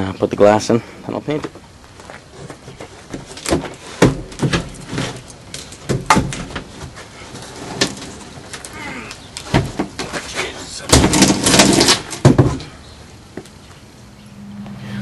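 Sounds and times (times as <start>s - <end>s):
plywood box knocking on concrete: 11.0s - 12.6s.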